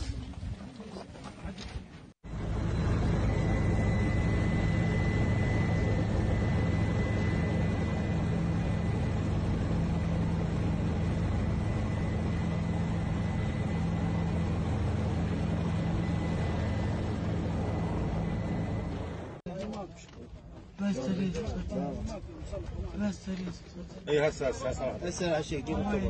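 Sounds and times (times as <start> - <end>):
aircraft engine drone: 2.2 - 19.4
faint high whine: 2.3 - 19.4.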